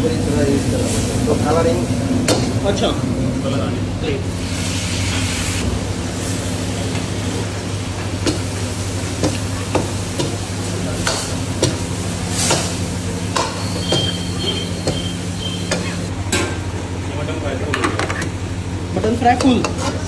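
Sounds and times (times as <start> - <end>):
high metal scraping squeal: 13.6 - 16.1.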